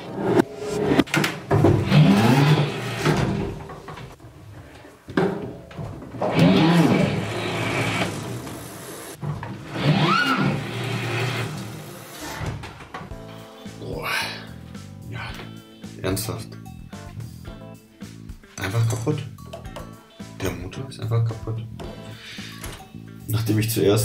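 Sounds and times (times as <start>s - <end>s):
electric bike motor whirring: 6.2s - 12.3s.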